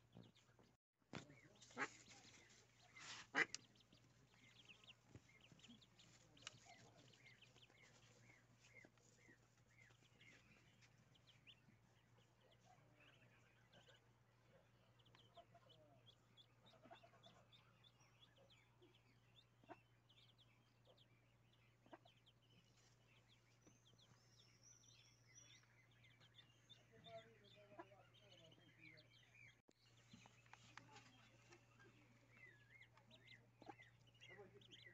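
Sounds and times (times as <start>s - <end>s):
ducklings peeping: 1.2s - 34.9s.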